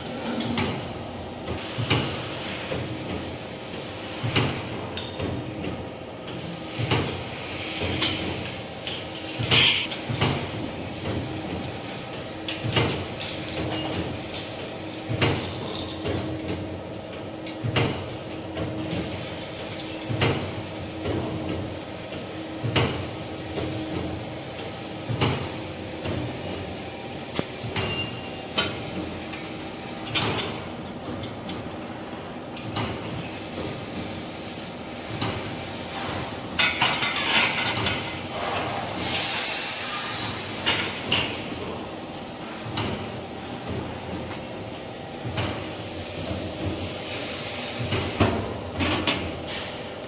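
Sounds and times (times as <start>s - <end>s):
machine knocking: 0.2s - 19.2s, 19.8s - 26.8s, 42.6s - 46.9s
sharpening machine motor humming: 9.4s - 9.9s.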